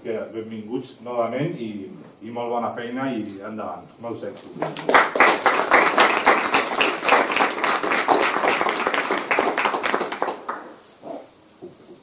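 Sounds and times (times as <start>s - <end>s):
people clapping: 4.6s - 10.9s.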